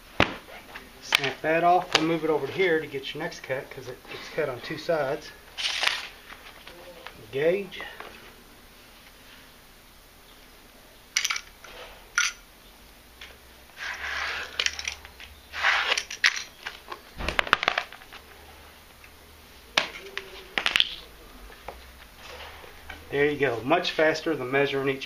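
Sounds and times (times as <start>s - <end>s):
utility knife scraping tile: 13.8s - 14.6s.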